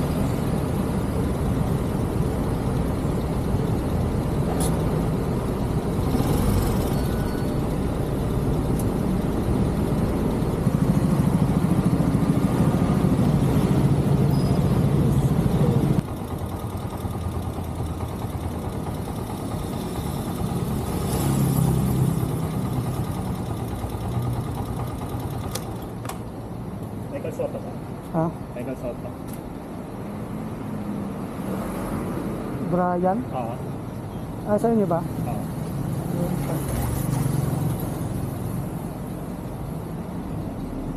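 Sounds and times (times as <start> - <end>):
motorcycle engine running: 0.0 - 25.8
road and traffic noise: 0.0 - 40.9.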